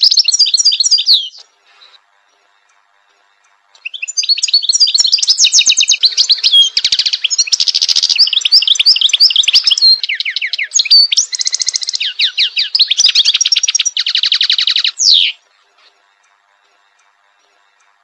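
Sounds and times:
goldfinch singing twittering trills: 0.0 - 1.5, 3.8 - 15.4.

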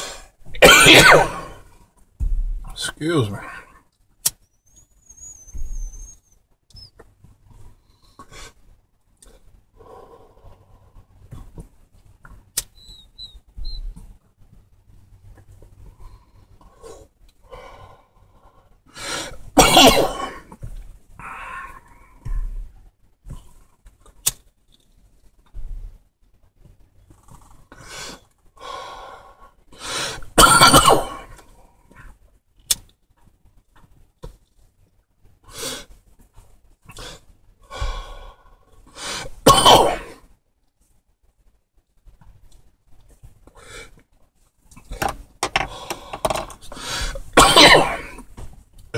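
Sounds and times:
man coughing: 0.6 - 1.5, 19.6 - 20.4, 30.4 - 31.2, 47.4 - 48.2.

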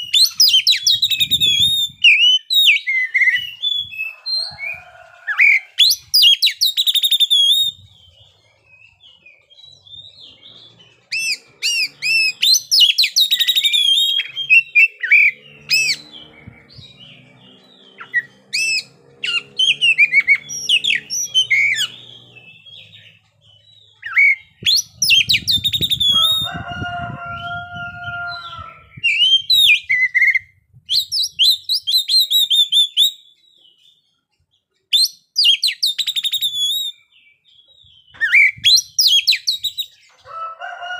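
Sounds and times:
bird singing whistles and trills: 0.0 - 40.1
low steady bird call: 0.0 - 40.9
low rumble: 15.4 - 23.2.

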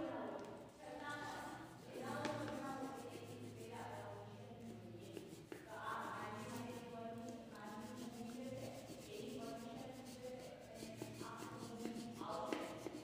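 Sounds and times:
faint background music: 0.0 - 13.0
crayon rubbing on paper: 1.1 - 13.0.

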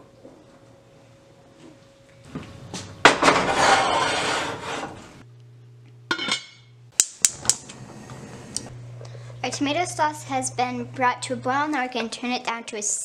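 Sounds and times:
pot scraping across metal grates: 3.2 - 5.0.

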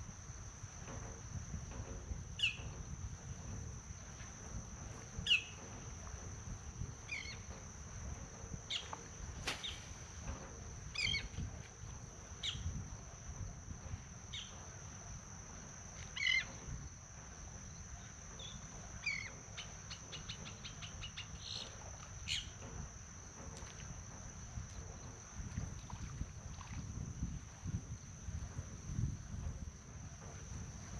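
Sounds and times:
insects buzzing: 0.0 - 30.9.

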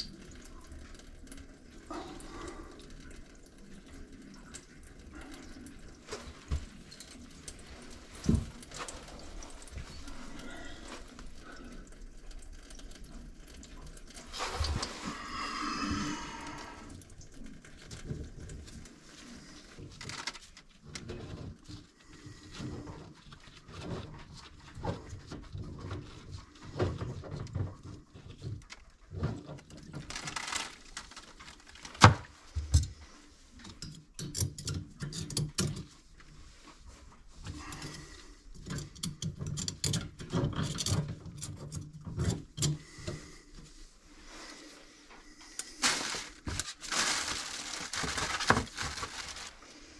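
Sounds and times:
knocks and clicks on pipe fittings: 33.6 - 36.0, 38.6 - 43.2
rustling of sleeve and gloves: 42.9 - 49.9.

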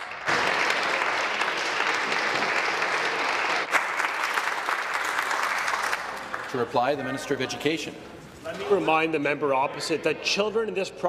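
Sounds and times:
people applauding: 0.0 - 7.4.

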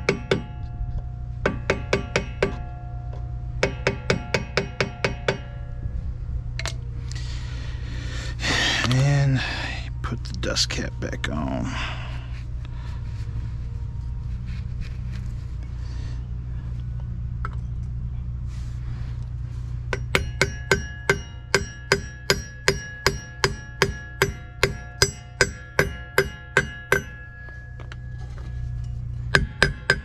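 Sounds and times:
hammer tapping metal: 0.0 - 0.6, 1.4 - 2.6, 3.6 - 5.6, 19.9 - 30.0.

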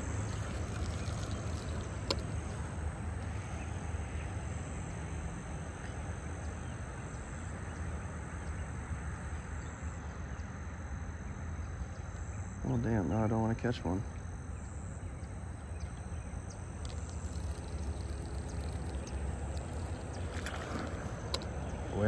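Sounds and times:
high-pitched insect drone: 0.0 - 5.6, 12.5 - 22.0.

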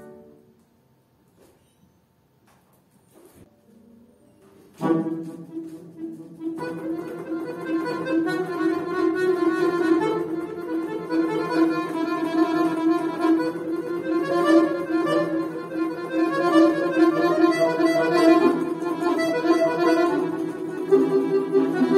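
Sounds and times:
button accordion chords: 4.8 - 21.9.

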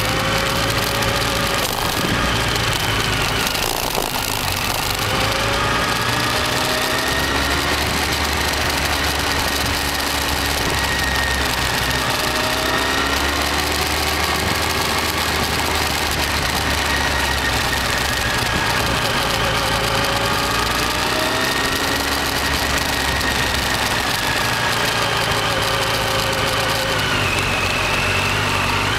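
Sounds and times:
motorcycle engine running: 0.0 - 28.9
wind noise on microphone: 0.1 - 6.3.

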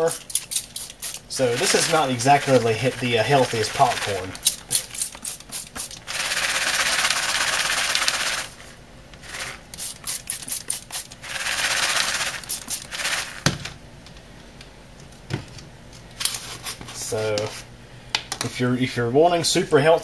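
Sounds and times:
spray bottle hissing: 0.3 - 7.1, 9.3 - 13.3.

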